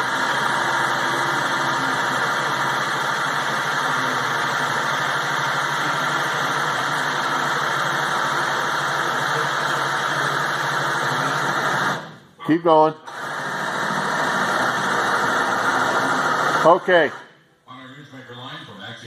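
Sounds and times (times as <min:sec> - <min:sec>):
machine drone with hiss: 0:00.0 - 0:12.1.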